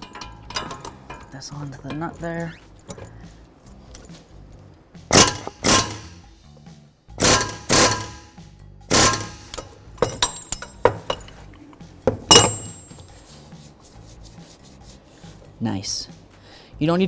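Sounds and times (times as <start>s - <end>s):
hammer striking metal wrench: 0.0s - 3.2s, 5.1s - 6.2s, 7.2s - 11.4s, 12.0s - 13.1s.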